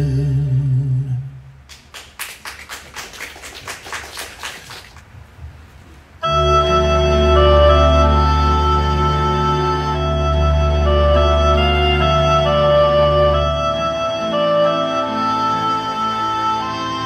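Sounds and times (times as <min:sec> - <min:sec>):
audience applause: 0:01.7 - 0:05.1
instrumental music with chords: 0:06.2 - 0:17.0.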